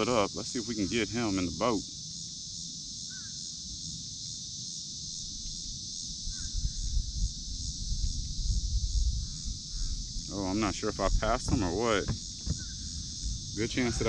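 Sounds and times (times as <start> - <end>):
insect chorus droning: 0.0 - 14.0
low rumbling thumps: 6.6 - 14.0.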